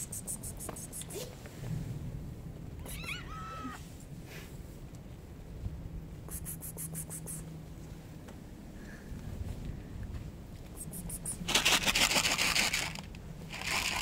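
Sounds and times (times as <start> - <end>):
cat meowing: 2.8 - 3.8
scratchy rustles: 10.9 - 14.0.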